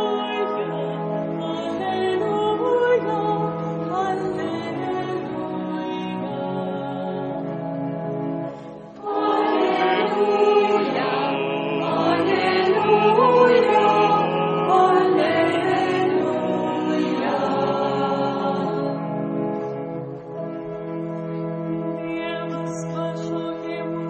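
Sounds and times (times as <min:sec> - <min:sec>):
choir singing: 0:00.0 - 0:07.5, 0:08.8 - 0:19.1.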